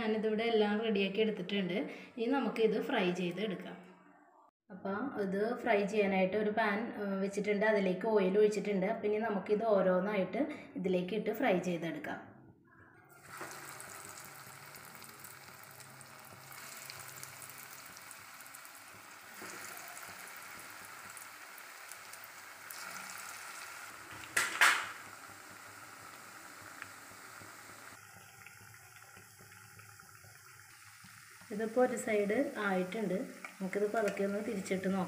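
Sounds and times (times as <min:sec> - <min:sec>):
food sizzling in hot oil: 0:13.1 - 0:35.0.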